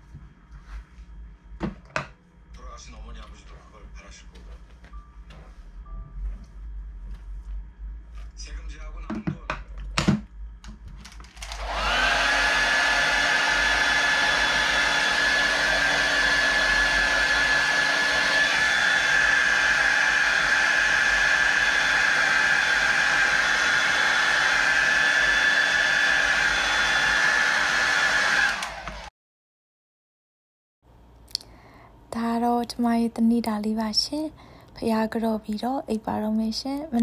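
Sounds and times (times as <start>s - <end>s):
small appliance motor whirring: 11.3s - 29.1s.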